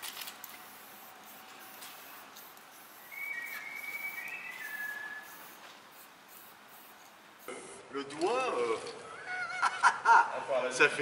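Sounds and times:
spray-paint can hissing: 0.0 - 7.7
person whistling: 3.0 - 5.4.

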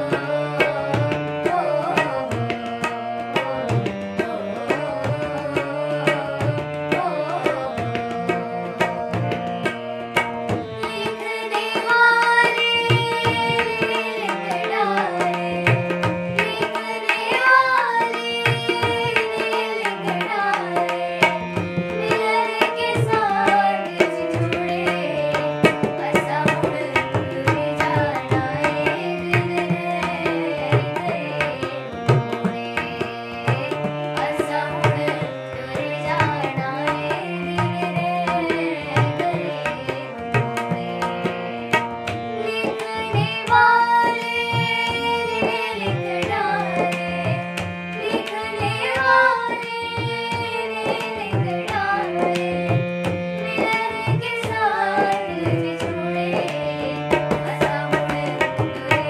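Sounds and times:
girls singing: 0.0 - 9.0, 10.3 - 41.4, 42.4 - 59.0
harmonium chords: 0.0 - 59.0
tabla rhythm: 0.0 - 59.0.

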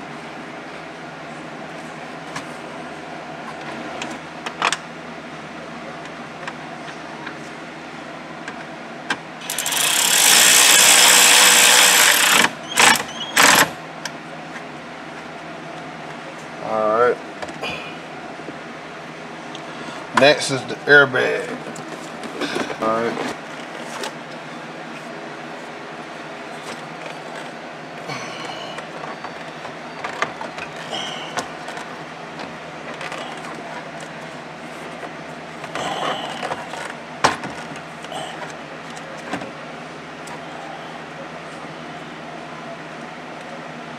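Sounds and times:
cordless drill driving screw: 9.4 - 13.7.

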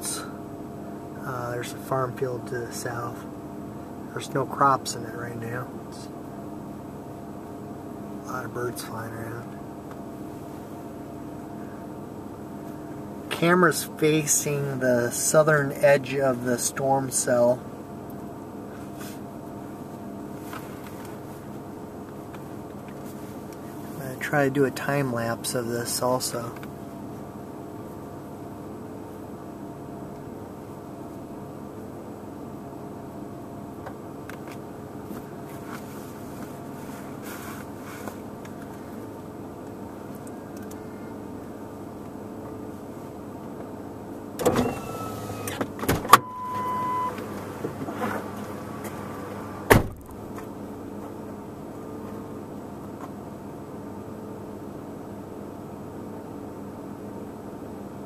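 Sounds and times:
short beep: 46.1 - 47.2.

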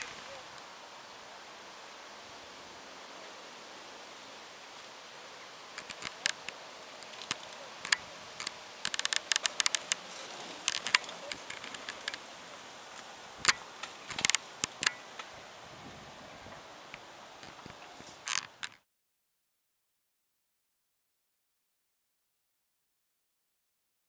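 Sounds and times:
faint steady hiss: 0.0 - 18.8
mountain bike rattling: 5.8 - 12.4, 13.4 - 15.0.

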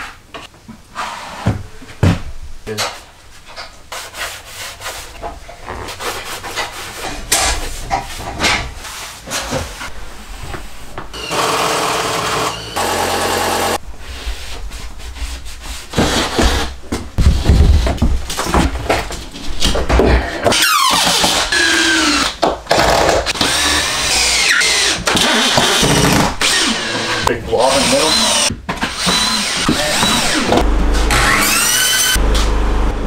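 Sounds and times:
hands scraping drywall and wood: 3.5 - 11.1, 14.0 - 20.2.

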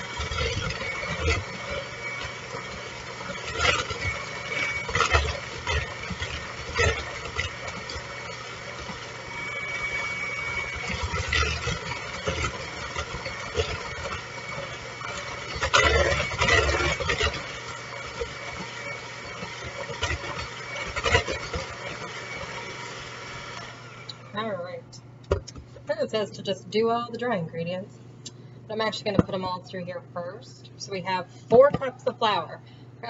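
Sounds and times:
electric hand mixer whirring: 0.0 - 24.8.

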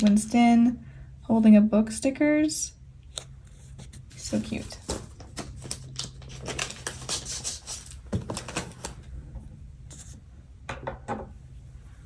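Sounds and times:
paper rustling: 3.5 - 9.1.

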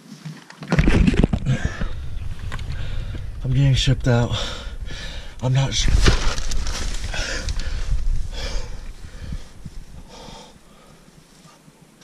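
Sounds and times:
person breathing into microphone: 1.4 - 3.4, 4.3 - 5.4, 6.0 - 11.6.

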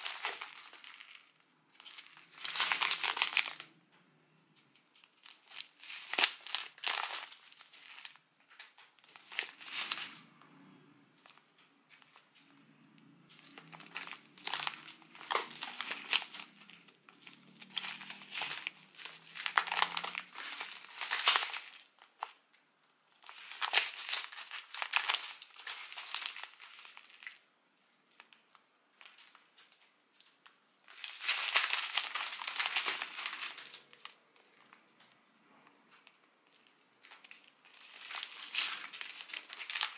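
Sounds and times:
plastic bags crinkling: 0.0 - 3.8, 4.6 - 10.4, 11.2 - 35.2, 35.9 - 39.9.

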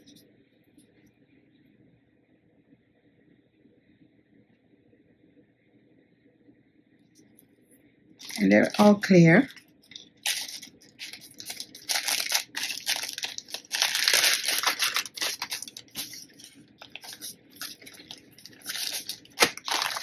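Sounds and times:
plastic bags crinkling: 8.2 - 20.0.

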